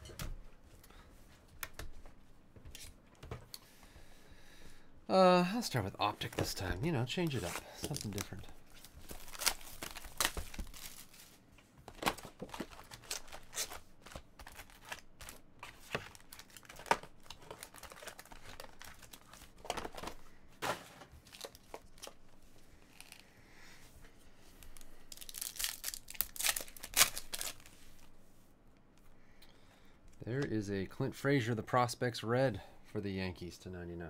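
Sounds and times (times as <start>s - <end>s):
plastic wrapping crinkling: 6.2s - 20.3s, 21.2s - 23.2s, 24.6s - 28.1s
card pack tearing: 6.3s - 11.3s, 11.9s - 20.2s, 24.8s - 27.7s.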